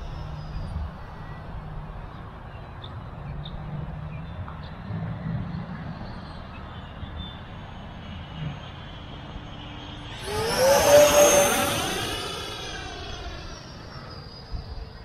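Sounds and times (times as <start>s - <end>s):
model jet fans whining: 0.0s - 2.4s, 6.7s - 15.0s.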